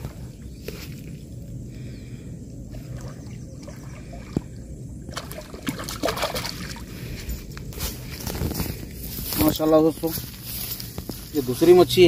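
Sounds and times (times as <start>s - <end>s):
steady low rumble: 0.0s - 12.0s
fish splashing in water: 2.7s - 7.1s.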